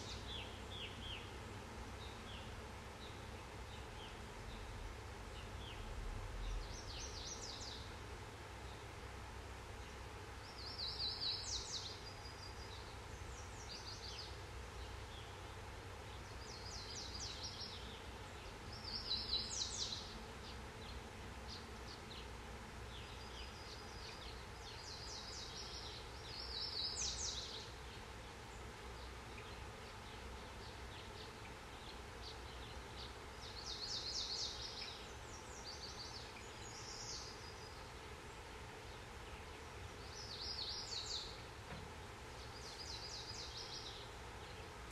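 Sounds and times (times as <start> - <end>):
low background rumble: 0.0 - 26.9
birds singing trilled phrases: 10.4 - 22.3, 22.9 - 41.5.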